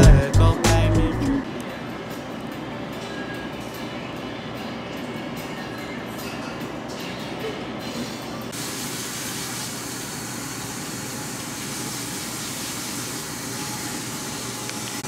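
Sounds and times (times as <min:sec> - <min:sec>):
water spraying from sprayer: 0:08.6 - 0:15.0.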